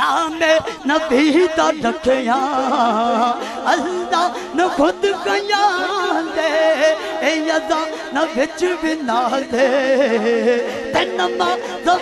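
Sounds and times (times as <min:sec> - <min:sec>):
man singing into a microphone: 0:00.0 - 0:12.0.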